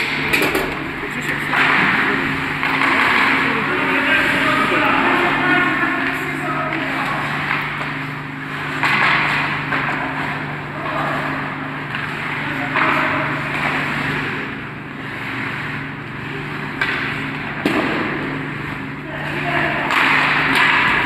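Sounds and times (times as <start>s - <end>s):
hockey sticks clattering: 0.0s - 14.4s, 15.0s - 21.0s
steady low hum: 0.0s - 21.0s
skate blades scraping ice: 1.4s - 21.0s
sharp hit on puck or boards: 8.8s - 9.9s, 16.8s - 18.4s, 19.9s - 21.0s.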